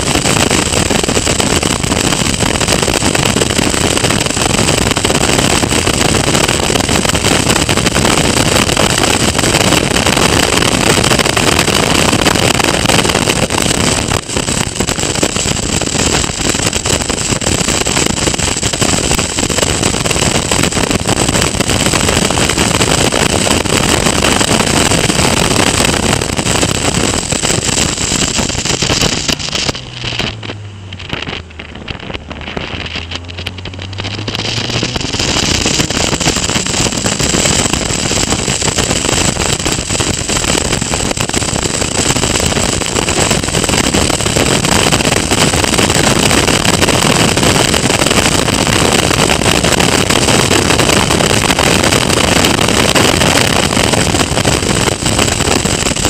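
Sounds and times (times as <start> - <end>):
race car engine running hard: 0.0 - 56.0
wind rush on microphone: 0.0 - 56.0
high-pitched whine: 11.1 - 42.9.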